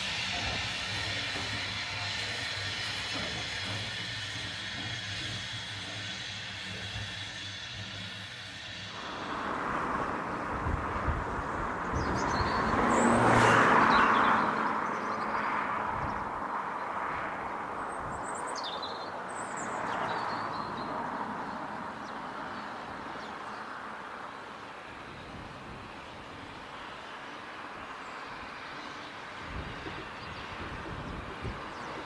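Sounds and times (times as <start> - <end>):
vehicle passing by: 8.9 - 16.7
birds chirping: 11.5 - 17.0.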